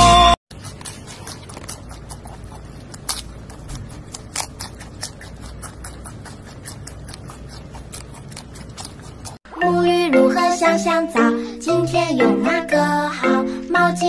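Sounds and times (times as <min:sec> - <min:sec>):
panda crunching bamboo: 0:00.5 - 0:09.4.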